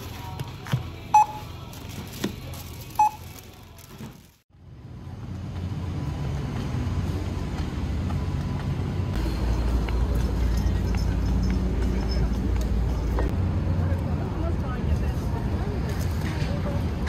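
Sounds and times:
city street traffic hum: 0.0s - 17.0s
barcode scanner beeps: 1.1s - 1.5s, 3.0s - 3.3s.

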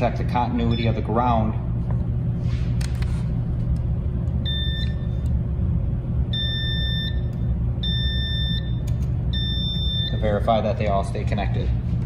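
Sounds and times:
multimeter high beeps: 0.5s - 1.4s, 4.4s - 5.2s, 6.3s - 10.6s.

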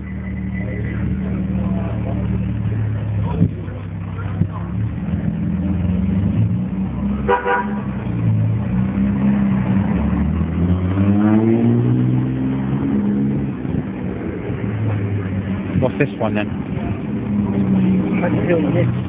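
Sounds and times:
sports car engine running: 0.0s - 19.0s
car horn toot: 7.2s - 8.0s.

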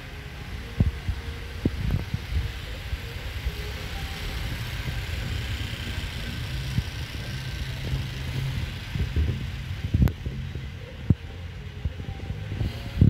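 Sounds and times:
even hiss: 0.0s - 13.0s
low city rumble: 0.0s - 13.0s
low thumps: 4.8s - 13.0s.

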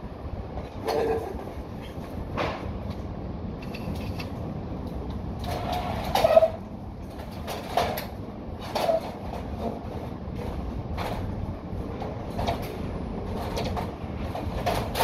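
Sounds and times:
construction site low rumble: 0.0s - 15.0s.

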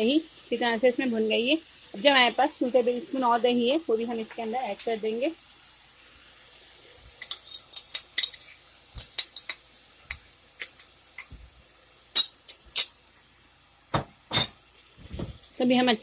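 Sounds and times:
faint sizzle: 0.0s - 16.0s
utensils tapping against pot: 4.3s - 5.0s, 7.2s - 11.4s, 12.1s - 13.0s.

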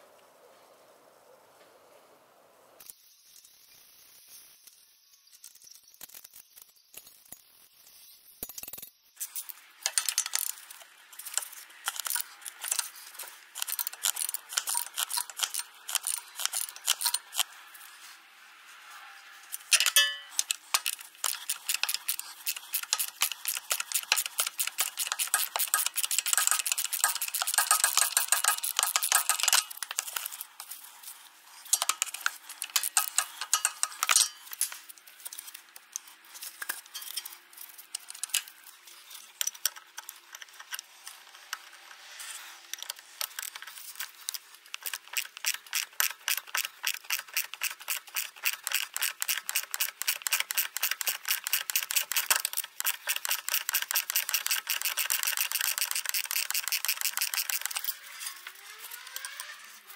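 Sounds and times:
ratchet wrench clicking: 9.2s - 17.5s, 19.5s - 30.7s, 31.6s - 36.0s, 42.8s - 59.8s.

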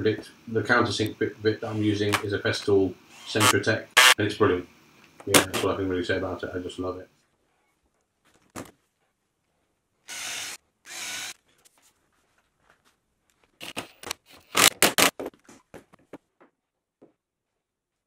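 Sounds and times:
drill cutting into plywood: 3.1s - 4.2s, 10.1s - 11.4s.

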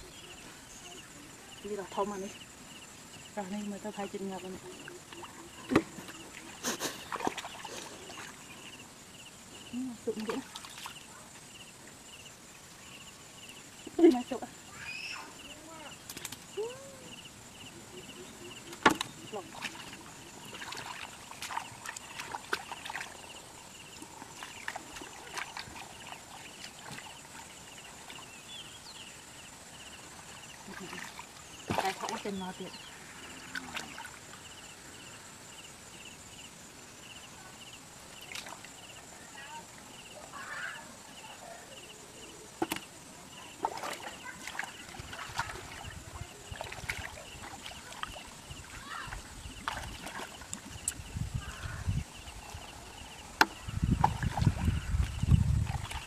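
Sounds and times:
low sloshing thuds: 18.5s - 28.2s, 29.8s - 32.7s, 43.4s - 56.0s
hands splashing in muddy water: 18.9s - 23.2s, 43.6s - 48.3s.

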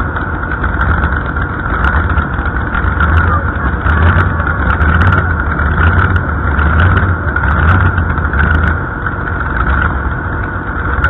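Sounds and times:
tractor engine idling: 0.0s - 11.0s.

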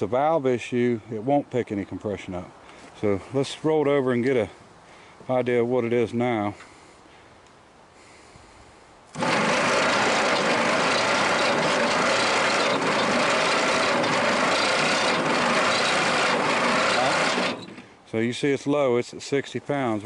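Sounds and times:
starter cranking engine: 9.1s - 17.9s.

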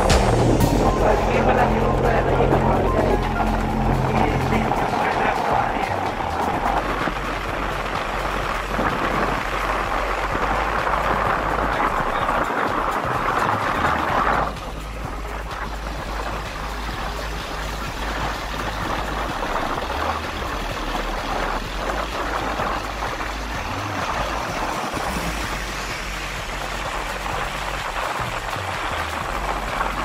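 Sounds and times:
low rumble: 0.0s - 30.0s
rushing air: 0.0s - 30.0s
tyres on wet road: 0.0s - 30.0s.

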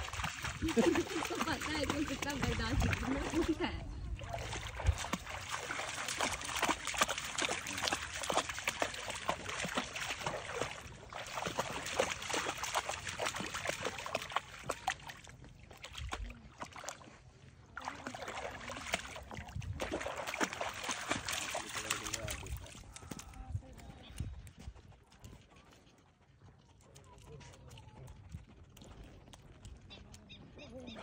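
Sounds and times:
dog splashing through water: 0.0s - 24.3s.

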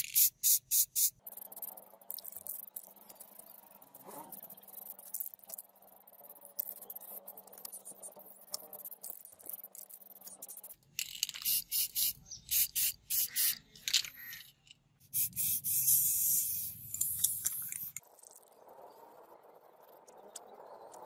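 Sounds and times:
aerosol spray can hissing: 0.1s - 1.2s, 11.4s - 13.6s, 15.1s - 18.0s.

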